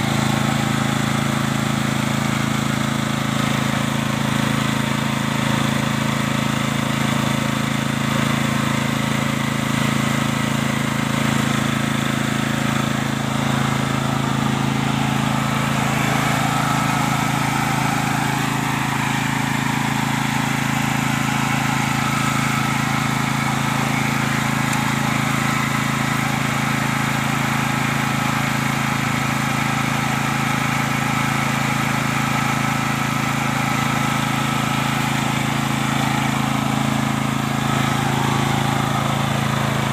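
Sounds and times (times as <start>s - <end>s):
petrol generator engine running: 0.0s - 39.9s.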